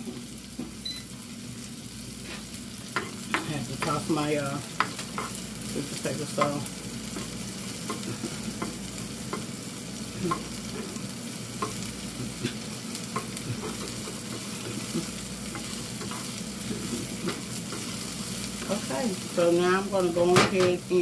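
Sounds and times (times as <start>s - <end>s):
onions sizzling in a frying pan: 0.0s - 21.0s
spatula scraping and tapping pan: 2.3s - 9.6s, 10.2s - 18.8s.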